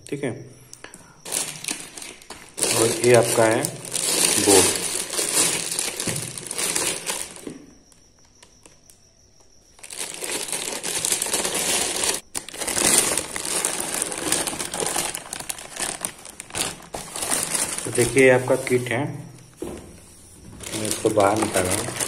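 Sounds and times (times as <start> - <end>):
plastic wrapping crinkling: 1.2 - 7.6, 9.7 - 18.8, 20.5 - 22.0.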